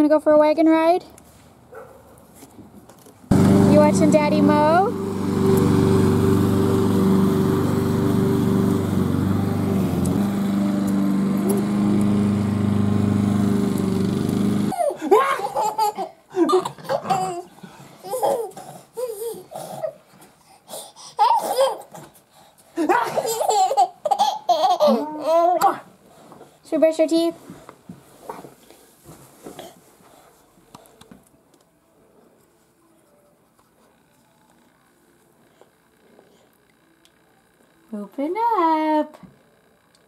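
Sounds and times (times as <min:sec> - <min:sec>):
lawn mower engine running: 0:03.3 - 0:14.7
baby giggling and laughing: 0:14.7 - 0:20.0, 0:21.0 - 0:22.0, 0:22.9 - 0:25.7.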